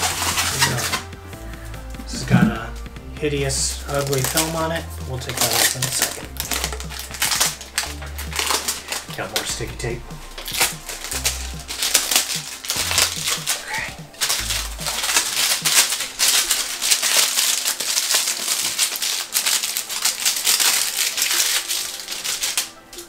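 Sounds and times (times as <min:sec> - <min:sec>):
packing tape peeling: 0:00.0 - 0:01.2, 0:03.5 - 0:23.0
background music with bass: 0:00.0 - 0:17.6
foam packing rustling: 0:00.0 - 0:23.0.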